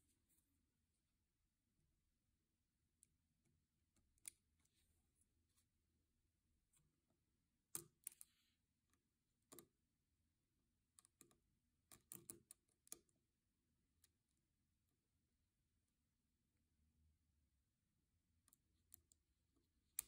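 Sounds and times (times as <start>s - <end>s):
small plastic clicks and taps: 7.7s - 9.8s, 10.9s - 13.2s.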